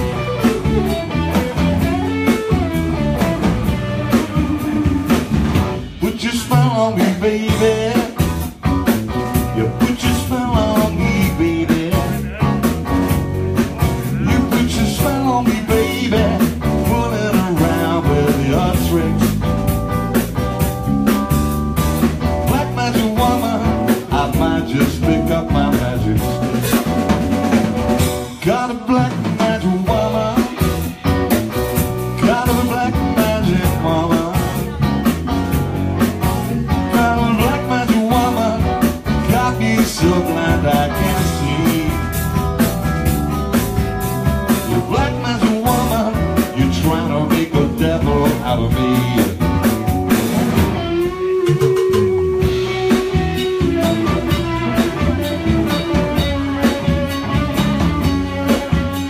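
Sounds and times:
drum kit beat: 0.0 - 59.0
electric guitars: 0.0 - 59.0.

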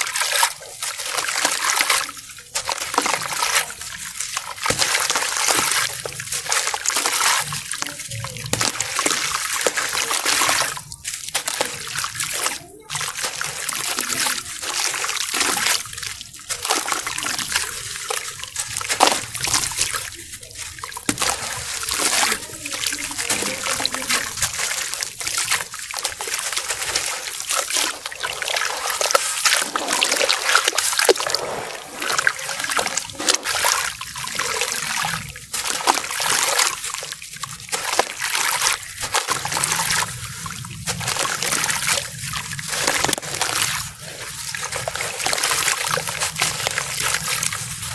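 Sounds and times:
water trickling and splashing: 0.0 - 47.9
gritty crunching of crumbling cement: 15.3 - 34.3, 35.1 - 47.9.

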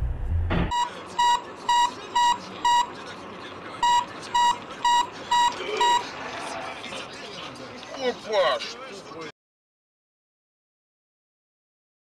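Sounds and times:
low road rumble: 0.0 - 7.9
car warning beeps: 0.7 - 3.1, 3.8 - 6.1.

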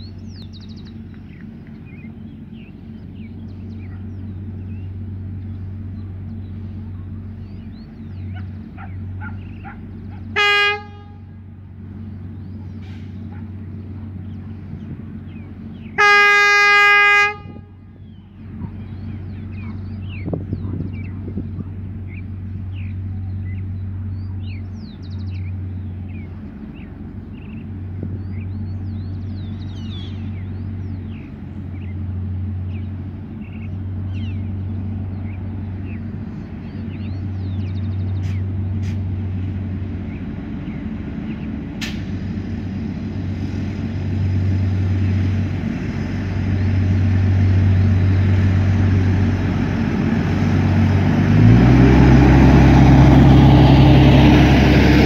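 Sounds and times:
rail truck engine passing: 0.0 - 55.0
wind rumbling on microphone: 17.4 - 23.6, 27.2 - 31.2.

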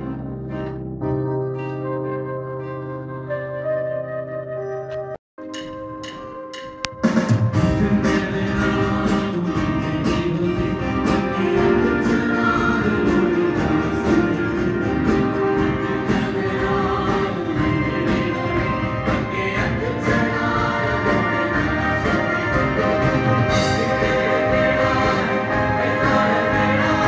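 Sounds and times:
instrumental accompaniment with drum beat: 5.4 - 27.0
choir singing gospel song: 7.6 - 27.0.

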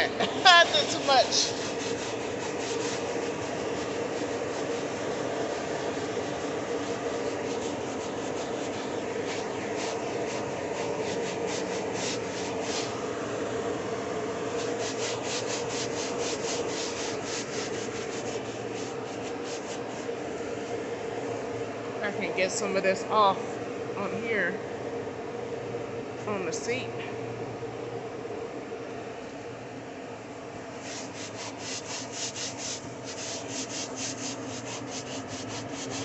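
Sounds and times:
steady low hum: 0.0 - 36.0
brush scrubbing fabric seat: 0.4 - 13.2, 14.4 - 20.9, 30.8 - 36.0.

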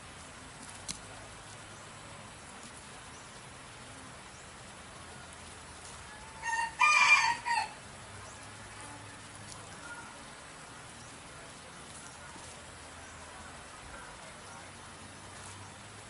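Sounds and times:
rooster crowing: 6.2 - 7.8.

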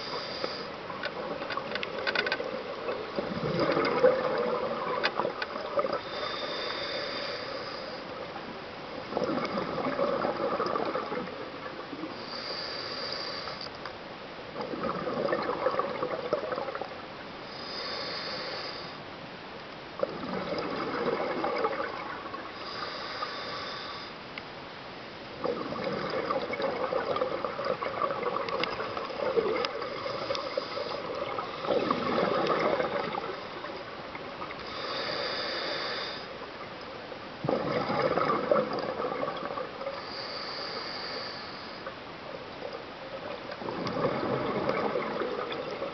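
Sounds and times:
hissing inhale through regulator: 0.0 - 0.9, 4.7 - 8.3, 12.0 - 13.7, 17.4 - 19.0, 22.4 - 24.3, 27.1 - 36.5, 37.7 - 42.0
bubbling exhale underwater: 2.5 - 6.9, 9.0 - 12.2, 14.6 - 17.0, 20.0 - 22.8, 25.4 - 35.4, 37.4 - 40.3, 43.2 - 45.9.

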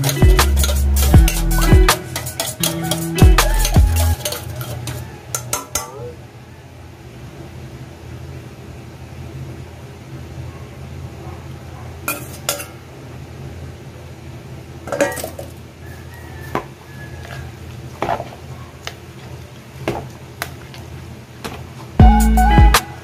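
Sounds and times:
background music: 0.0 - 5.0, 22.0 - 23.0
utensil clinking against a bowl: 0.0 - 6.0, 12.1 - 12.8, 14.9 - 15.5.

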